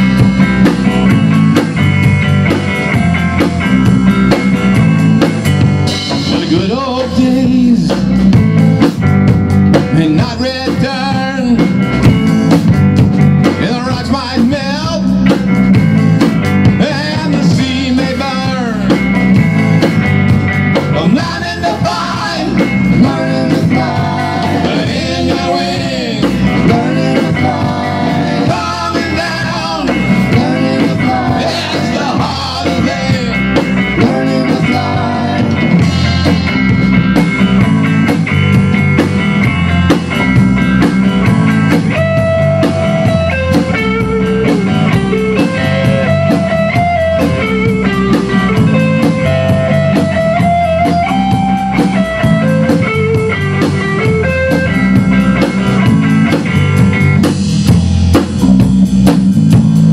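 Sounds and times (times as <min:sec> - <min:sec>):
bass guitar: 0:00.0 - 0:59.9
drum kit: 0:00.0 - 0:59.9
electric guitar: 0:00.0 - 0:59.9
guitar lead line: 0:00.0 - 0:59.9
person singing: 0:06.3 - 0:08.1, 0:20.9 - 0:36.4.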